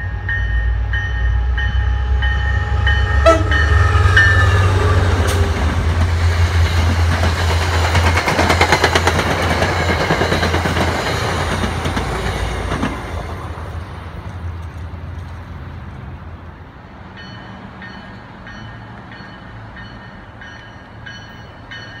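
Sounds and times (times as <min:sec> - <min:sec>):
train horn: 0:00.0 - 0:05.9
diesel locomotive engine drone: 0:00.0 - 0:22.0
train wheels clicking over rail joints: 0:02.8 - 0:16.0.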